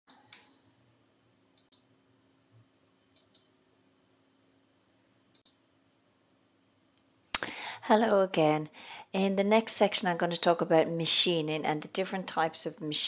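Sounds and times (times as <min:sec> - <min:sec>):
faint steady hum: 0:00.1 - 0:13.0.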